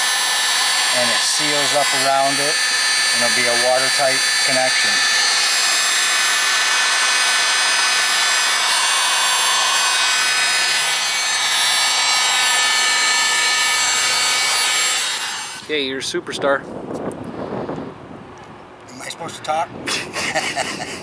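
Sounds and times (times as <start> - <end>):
heat gun fan hissing: 0.0 - 15.9
thin whining tones: 0.0 - 15.9.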